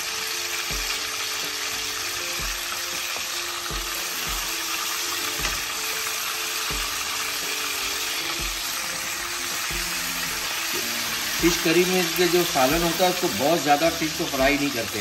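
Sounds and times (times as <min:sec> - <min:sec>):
fish sizzling in oil: 0:00.0 - 0:15.0
spatula turning fish in pan: 0:00.1 - 0:14.7.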